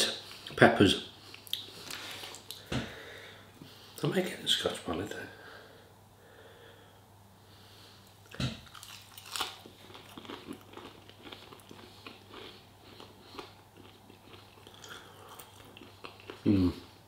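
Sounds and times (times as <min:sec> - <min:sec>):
close-up chewing with crunches: 0:08.3 - 0:16.5.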